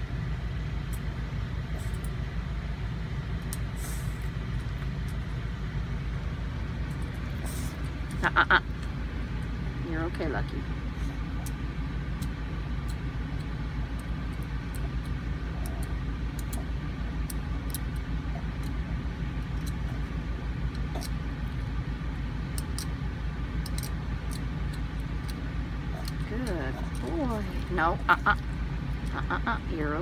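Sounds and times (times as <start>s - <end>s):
low mechanical hum: 0.0s - 30.0s
dental scaler clicking and scraping: 23.7s - 25.4s.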